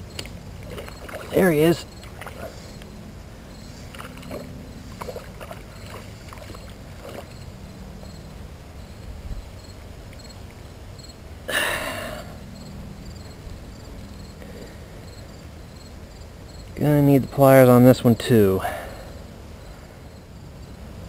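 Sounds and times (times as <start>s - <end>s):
line and grass clicks and rustles: 0.0s - 3.0s, 3.6s - 7.5s
faint insect chirps: 0.0s - 21.0s.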